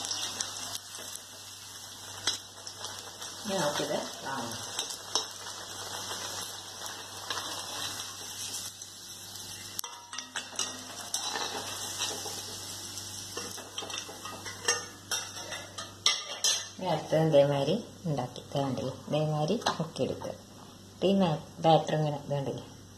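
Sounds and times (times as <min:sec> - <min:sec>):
oil sizzling: 0:00.0 - 0:21.0
metal spoon scraping pan: 0:09.8 - 0:12.5, 0:13.4 - 0:16.7.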